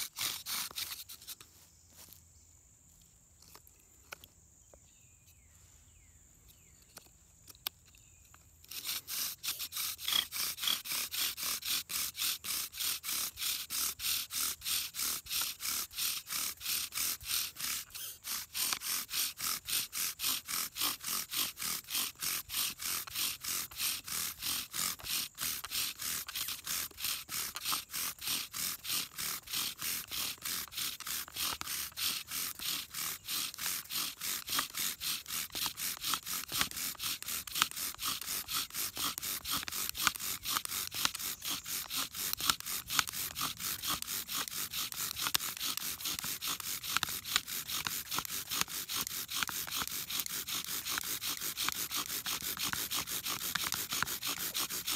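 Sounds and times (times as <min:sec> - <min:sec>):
bow drill spindle scraping: 0:00.0 - 0:02.2, 0:06.5 - 0:54.9.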